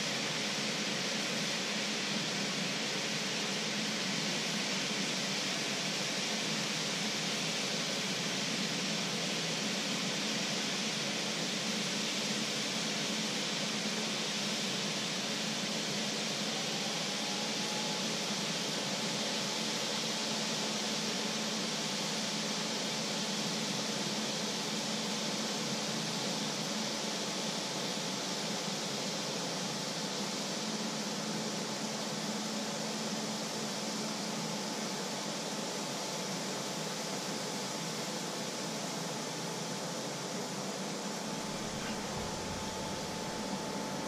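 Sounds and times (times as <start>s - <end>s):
faint steady whine: 0.0s - 44.0s
water boiling in pot: 41.0s - 44.0s.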